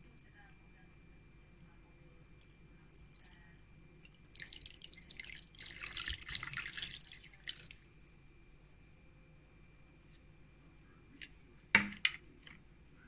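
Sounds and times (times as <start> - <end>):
faint drips: 2.4 - 9.1
liquid pouring into plastic tub: 4.0 - 8.3.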